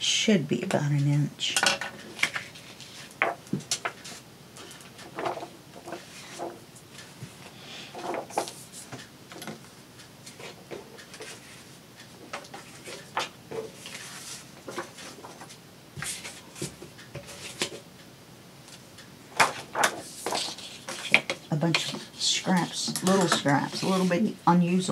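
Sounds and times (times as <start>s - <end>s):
paper rustling: 19.4s - 24.2s.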